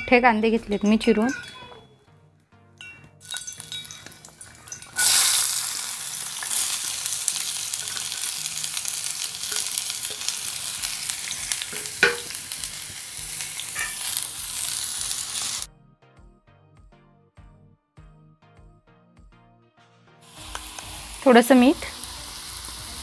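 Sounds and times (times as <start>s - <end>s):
onions sizzling in hot oil: 3.2s - 15.7s, 20.2s - 23.0s
metal ladle scraping pan: 9.1s - 12.5s, 13.6s - 14.3s.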